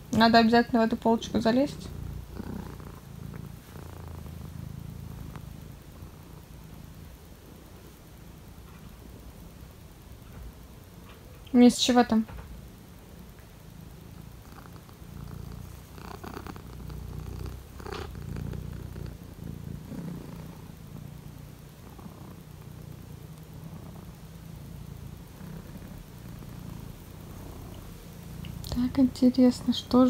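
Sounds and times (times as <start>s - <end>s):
cat purring: 0.0s - 30.0s.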